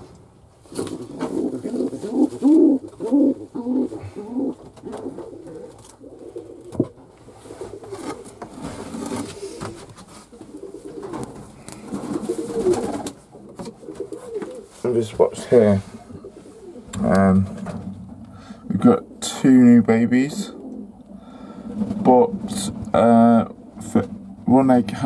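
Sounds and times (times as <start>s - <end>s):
pigeons cooing: 0.7s - 25.0s.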